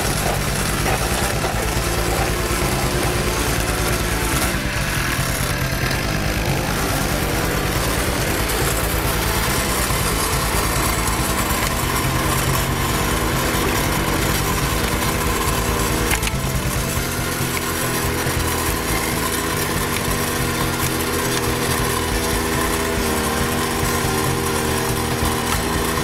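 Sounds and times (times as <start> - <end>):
small petrol engine running: 0.0 - 26.0.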